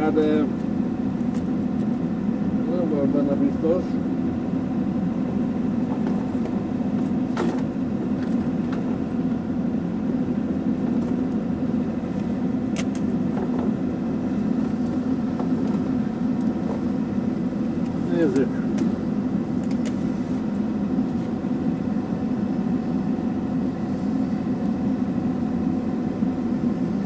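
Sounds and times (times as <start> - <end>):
excavator engine idling: 0.0 - 27.0.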